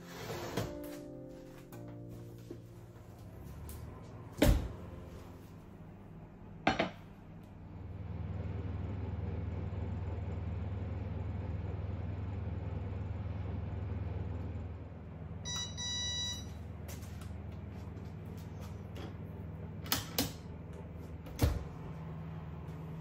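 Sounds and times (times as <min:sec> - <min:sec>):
oven fan hum: 0:00.0 - 0:23.0
electronic beep: 0:15.5 - 0:16.5
oven control clicks: 0:19.8 - 0:20.4.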